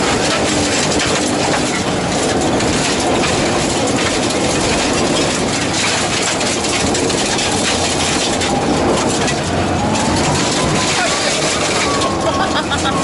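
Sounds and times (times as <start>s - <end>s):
car engine running hard: 0.0s - 13.0s
stones rattling against car: 0.0s - 13.0s.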